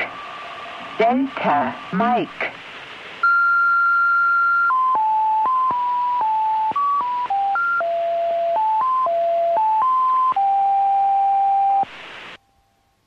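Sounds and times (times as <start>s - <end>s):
radio hiss: 0.0s - 10.4s, 11.7s - 12.4s
electronic tone tune: 3.2s - 11.9s.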